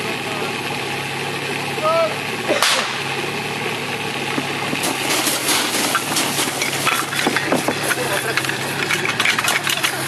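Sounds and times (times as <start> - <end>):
pump engine idling: 0.0 - 10.0
sharp crack: 2.5 - 3.1
metallic clanking of hose couplings: 4.8 - 10.0.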